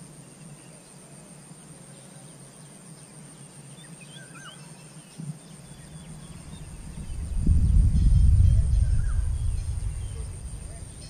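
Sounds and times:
bird chirps: 3.8s - 11.0s
low steady hum: 5.7s - 11.0s.

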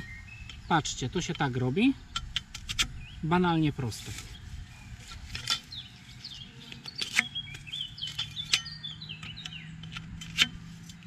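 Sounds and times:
bird chirping: 0.0s - 11.0s
steel frames clinking and knocking: 5.0s - 6.0s, 6.8s - 11.0s.

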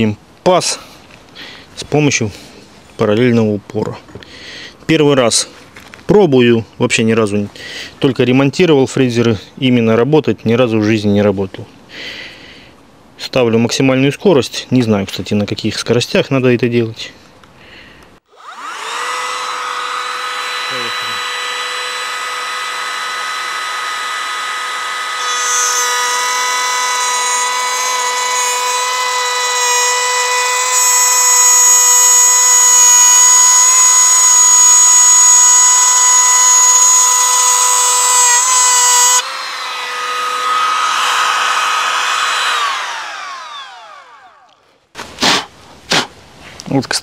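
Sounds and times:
motor winding down: 18.3s - 44.6s
router bit cutting wood: 18.3s - 44.6s
router motor whining: 18.3s - 44.7s.

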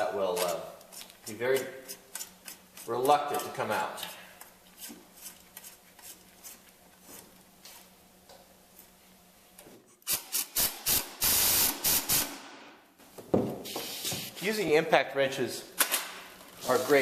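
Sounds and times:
pneumatic impact wrench bursts: 10.0s - 12.5s.

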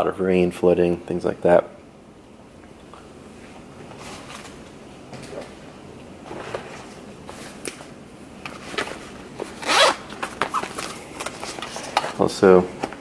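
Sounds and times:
pouch rasping: 9.5s - 11.9s.

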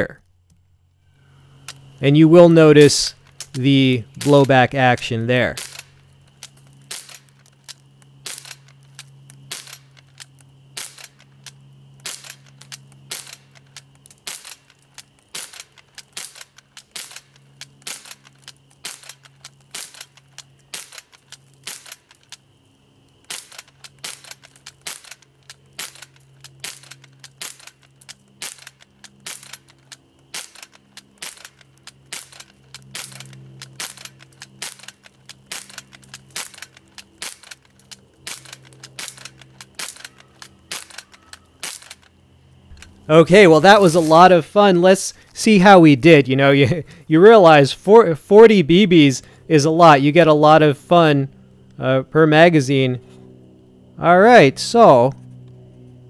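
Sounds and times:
bb gun firing pops: 5.6s - 22.4s, 23.2s - 42.1s.

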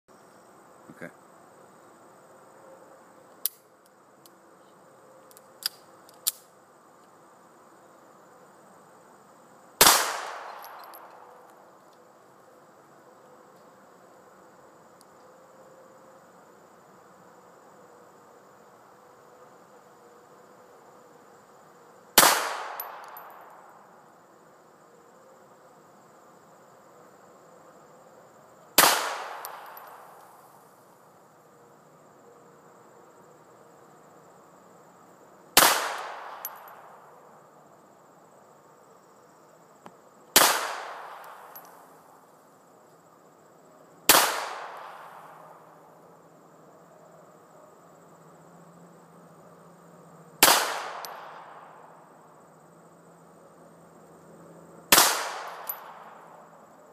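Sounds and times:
insect buzz: 0.1s - 56.9s
pistol shots echoing: 9.8s - 11.1s, 22.2s - 23.5s, 28.8s - 30.0s, 35.6s - 36.7s, 40.4s - 41.5s, 44.1s - 45.2s, 50.4s - 51.4s, 54.9s - 56.1s.

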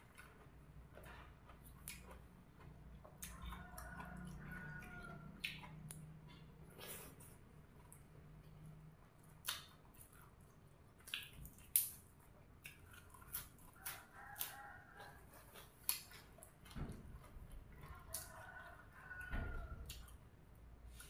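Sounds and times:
person chewing leafy greens: 0.0s - 21.0s
distant rooster crowing: 3.2s - 5.4s, 13.8s - 15.5s, 16.8s - 20.1s.

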